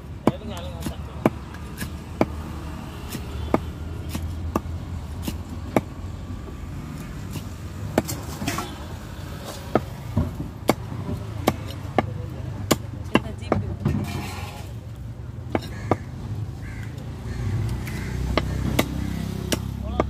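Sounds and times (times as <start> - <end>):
cleaver chopping on wooden block: 0.2 - 5.9, 9.7 - 13.6, 15.4 - 16.1, 17.6 - 20.0.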